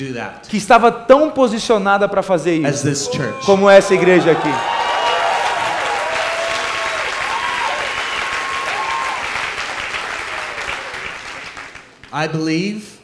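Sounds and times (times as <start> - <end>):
audience applauding: 3.5 - 12.2.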